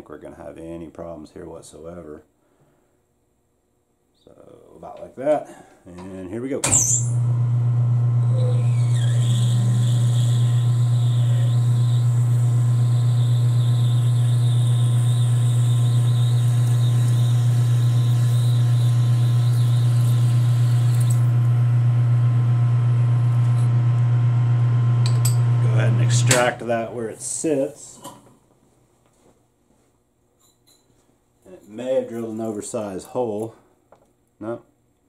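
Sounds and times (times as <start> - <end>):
high drill cutting squeal: 6.7 - 7.2, 8.2 - 21.3
metal lathe humming: 7.2 - 26.6.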